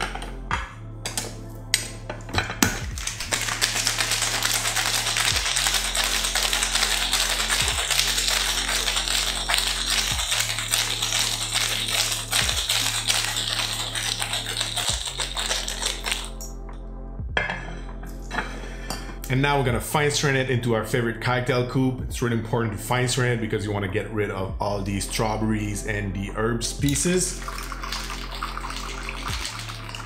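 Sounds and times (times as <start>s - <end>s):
background music with bass line: 0.0s - 30.0s
ice rattling in cocktail shaker: 2.8s - 16.5s, 27.3s - 30.0s
ice clinks: 3.0s - 16.4s.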